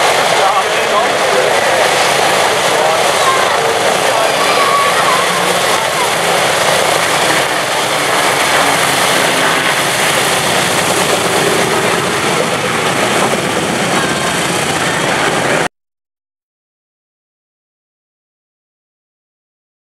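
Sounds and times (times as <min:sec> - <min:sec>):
radial engines of bomber taxiing: 0:00.0 - 0:15.7.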